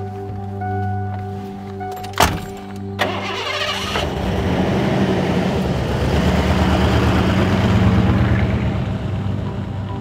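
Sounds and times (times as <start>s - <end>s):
truck engine running: 3.0s - 10.0s.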